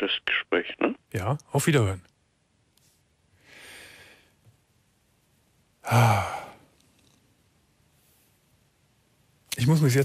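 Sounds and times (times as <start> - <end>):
man breathing out: 3.4 - 4.4, 5.8 - 6.6
man sighing: 5.8 - 6.7.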